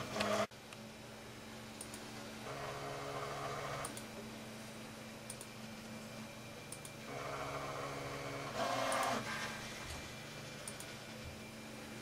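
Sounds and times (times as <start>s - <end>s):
computer humming: 0.0s - 12.0s.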